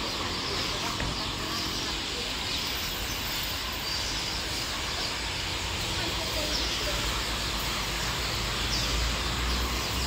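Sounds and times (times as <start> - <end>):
faint background voices: 0.0 - 3.0
traffic rumble: 0.0 - 10.0.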